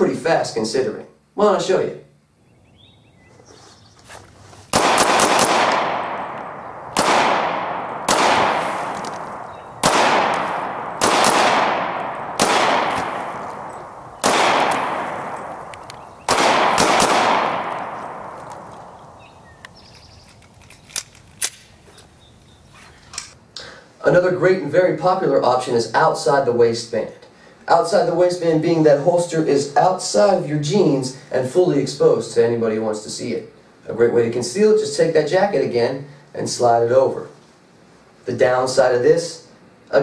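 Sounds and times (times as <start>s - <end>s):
pistol shots echoing: 4.7s - 19.6s
faint clicks: 15.6s - 16.1s.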